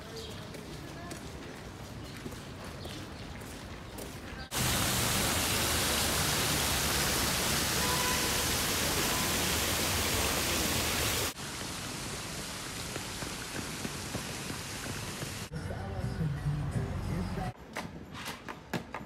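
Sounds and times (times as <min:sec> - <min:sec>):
fountain water splashing: 0:03.4 - 0:15.5.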